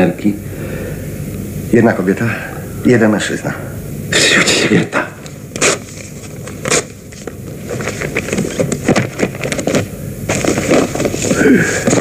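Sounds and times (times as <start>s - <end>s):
photographs rustling: 5.5s - 12.0s.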